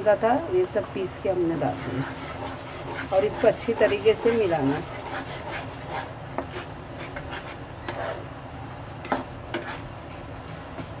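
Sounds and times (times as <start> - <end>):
spatula scraping frying pan: 1.4 - 8.3, 9.0 - 10.0.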